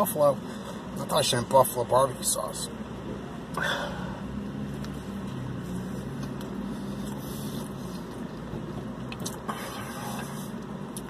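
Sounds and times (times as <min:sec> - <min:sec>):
car running heard from cabin: 0:00.0 - 0:11.0.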